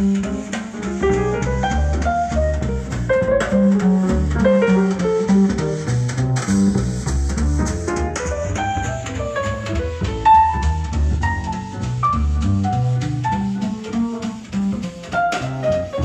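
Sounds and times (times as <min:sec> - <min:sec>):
jazz music through speakers: 0:00.0 - 0:16.0.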